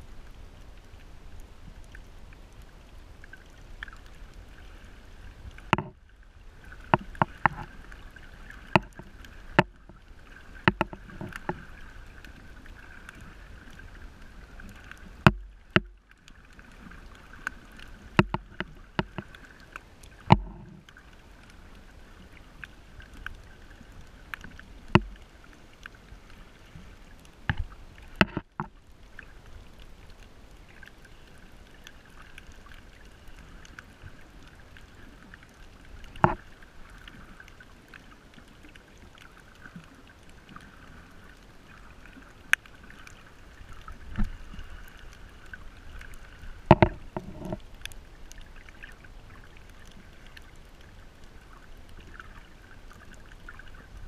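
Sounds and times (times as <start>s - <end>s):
muffled underwater hiss: 0.0s - 54.0s
underwater knocks and thuds: 5.6s - 6.0s, 6.8s - 7.8s, 8.7s - 10.0s, 10.6s - 11.7s, 15.2s - 16.0s, 18.1s - 19.4s, 20.2s - 20.9s, 24.9s - 25.2s, 27.5s - 28.8s, 36.1s - 36.5s, 46.6s - 47.6s.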